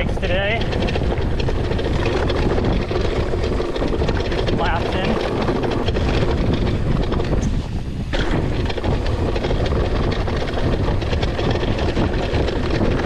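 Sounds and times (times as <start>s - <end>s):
bike rattling and clicking: 0.0s - 13.0s
bike tyres rolling on dirt: 0.0s - 13.0s
wind buffeting microphone: 0.0s - 13.0s.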